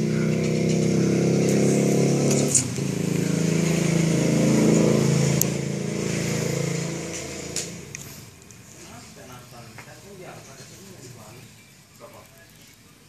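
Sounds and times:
engine running: 0.0 - 8.7.

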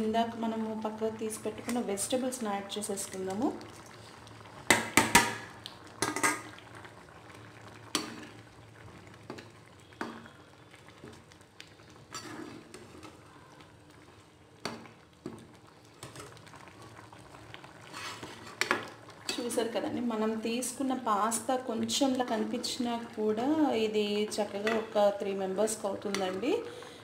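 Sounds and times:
spoon knocking and scraping pan: 4.7 - 5.4
metal spoon stirring in a pan: 12.0 - 13.2, 17.8 - 19.5.

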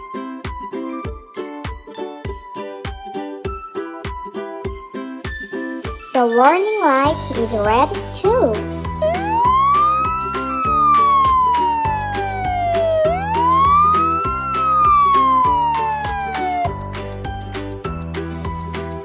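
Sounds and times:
background music with steady beat: 0.0 - 19.0
siren wailing: 9.0 - 16.8.

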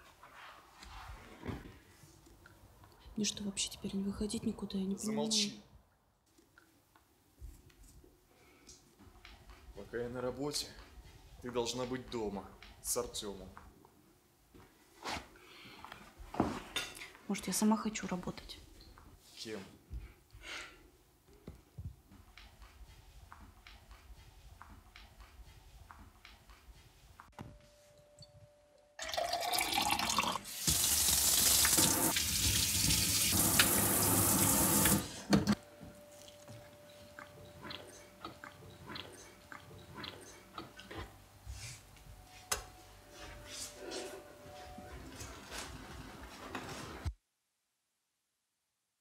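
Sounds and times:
faucet running into sink: 29.1 - 35.1.

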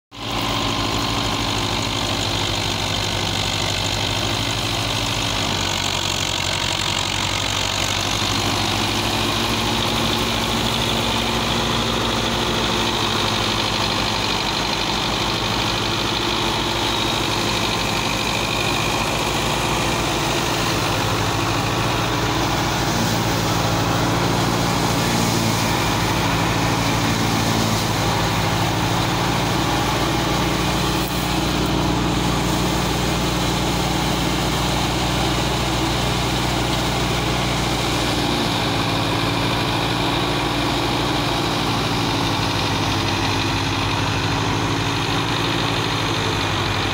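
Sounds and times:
tractor diesel engine running: 0.1 - 46.9
thresher drum whirring: 0.2 - 46.9.

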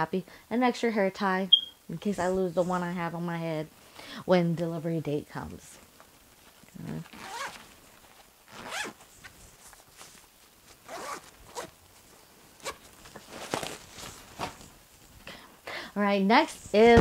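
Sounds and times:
zipper being pulled shut: 6.7 - 7.7, 8.5 - 9.0, 10.8 - 11.8.

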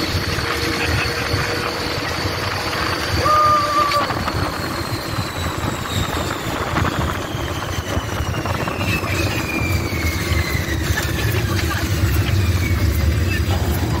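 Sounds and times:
ride vehicle rumble: 0.0 - 14.0
wind rushing: 2.0 - 11.2.

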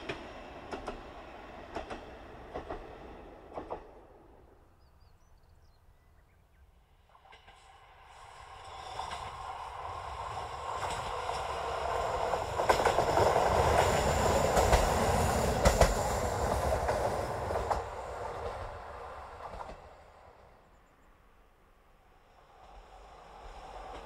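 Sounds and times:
train wheels clicking: 0.0 - 4.3, 7.2 - 20.4.

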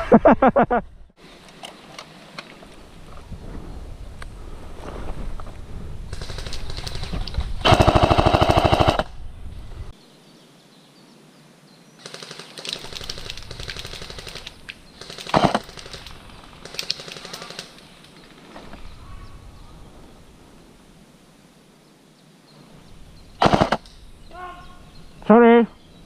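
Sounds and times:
airsoft machine gun full-auto fire: 6.1 - 9.1, 12.0 - 17.7, 23.4 - 23.8.

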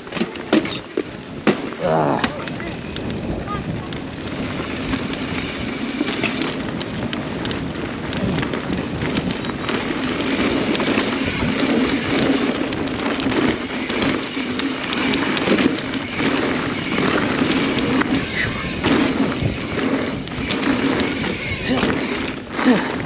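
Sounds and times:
bike knocks and rattles: 0.0 - 23.0
bike tyres rushing over dirt: 0.0 - 23.0.

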